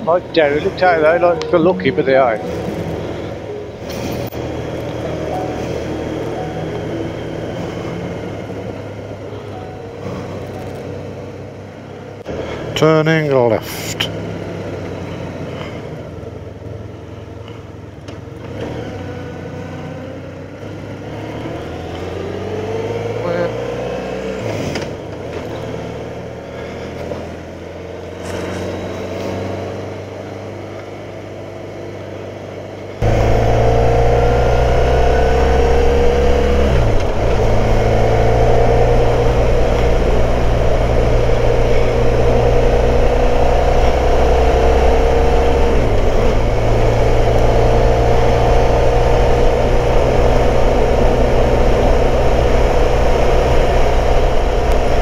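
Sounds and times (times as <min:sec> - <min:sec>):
motorcycle engine running: 0:30.2 - 0:55.0.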